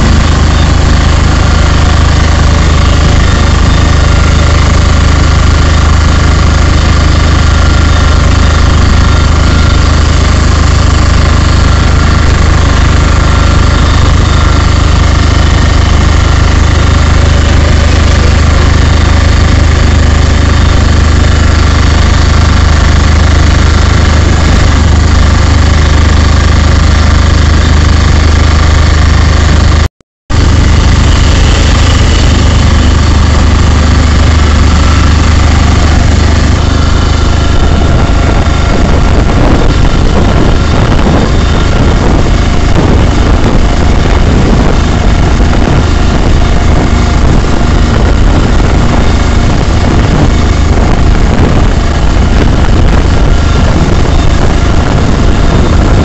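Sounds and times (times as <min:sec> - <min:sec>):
vehicle engine running from inside cab: 0:00.0 - 0:56.0.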